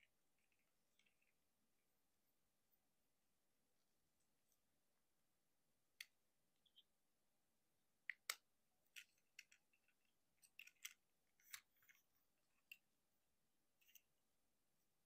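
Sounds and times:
plastic toy parts clicking: 8.0 - 12.8.

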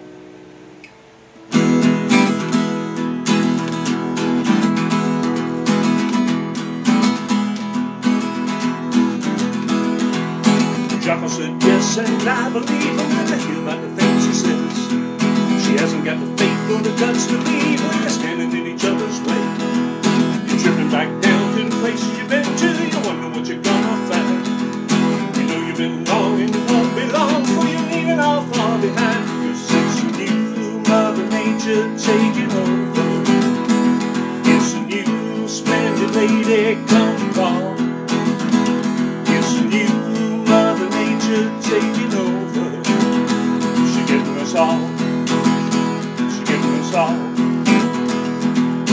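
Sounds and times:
acoustic guitar strumming: 0.0 - 48.9
man singing: 10.6 - 48.9.

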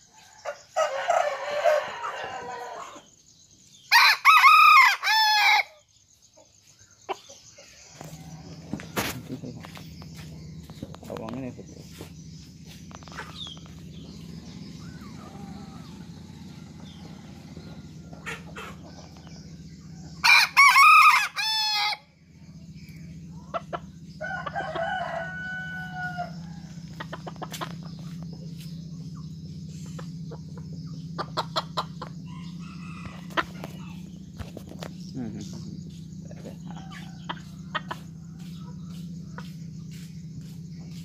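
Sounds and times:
rooster crowing: 0.0 - 3.1, 3.9 - 5.8, 14.7 - 22.1, 24.2 - 27.1, 32.2 - 34.1, 36.4 - 38.5
steady low hum: 0.0 - 41.0.

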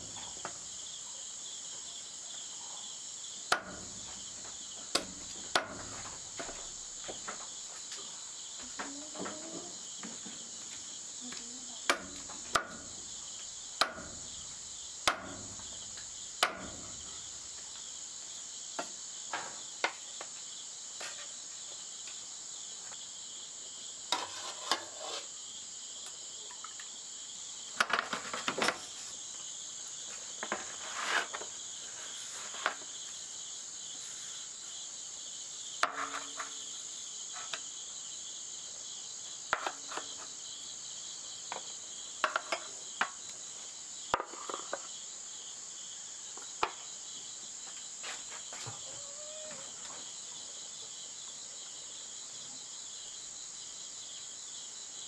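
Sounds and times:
crickets and insects chirping: 0.0 - 55.0
sharp knocks: 3.5 - 6.6, 15.0 - 17.1.

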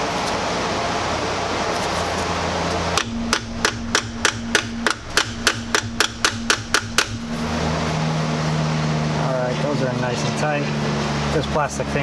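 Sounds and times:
hammer striking metal: 3.0 - 8.4.

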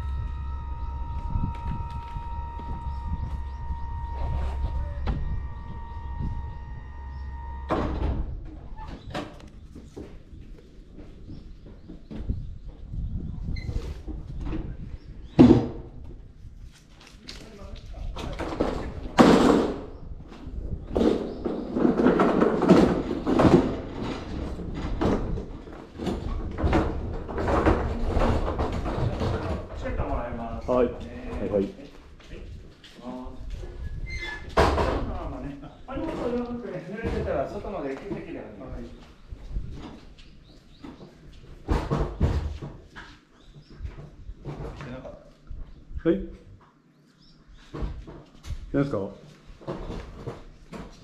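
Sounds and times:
gangway motor hum and whine: 0.0 - 8.7
low steady rumble: 0.0 - 8.8
ramp clunk: 0.0 - 9.5, 20.9 - 30.0
hand cart rattling and clattering: 20.8 - 30.3.

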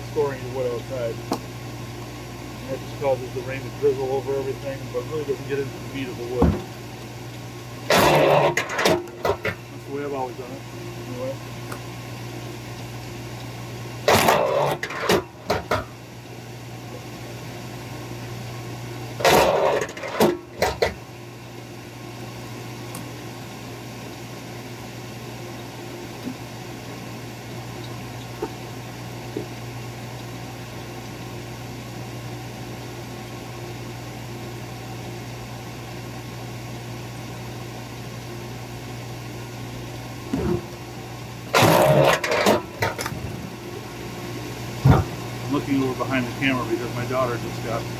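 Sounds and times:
log splitter motor humming: 0.0 - 47.9
splitter driving through wood: 41.5 - 42.6.

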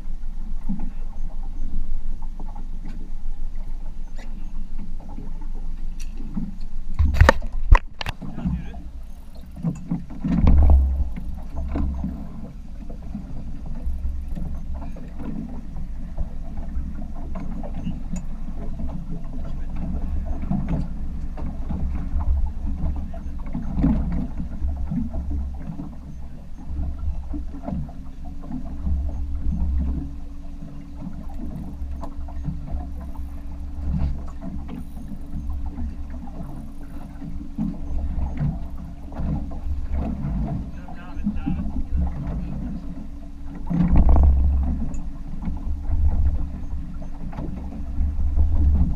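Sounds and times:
wind and water against hull: 0.0 - 48.9
knocks on boat: 6.3 - 8.8, 9.6 - 26.1, 30.8 - 48.9.

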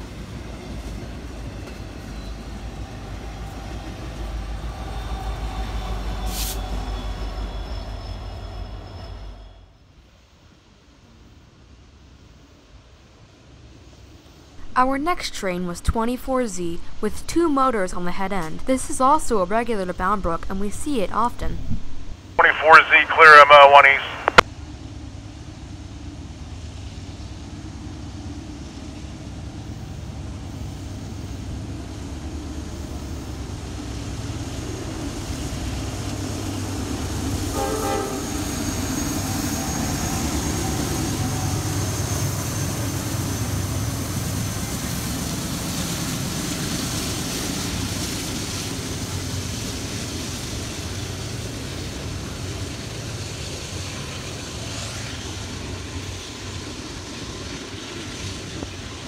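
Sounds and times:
diesel locomotives passing: 0.0 - 59.0
train horn toot: 37.5 - 38.6.

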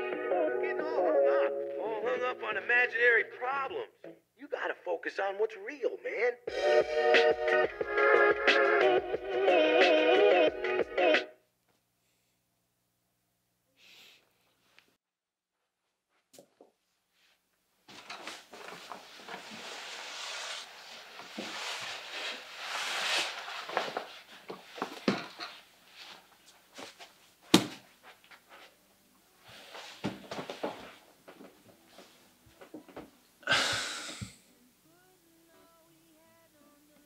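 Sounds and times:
rustling and shuffling: 14.3 - 33.2.

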